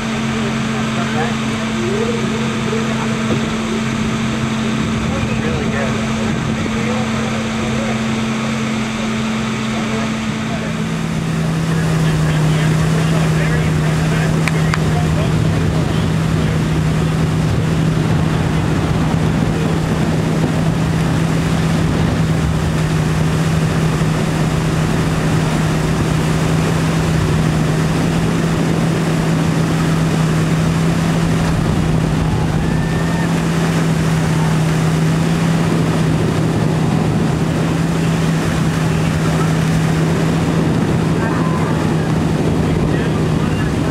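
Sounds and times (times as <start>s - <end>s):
boat engine droning: 0.0s - 43.9s
rushing water: 0.0s - 43.9s
wind noise: 10.8s - 43.9s.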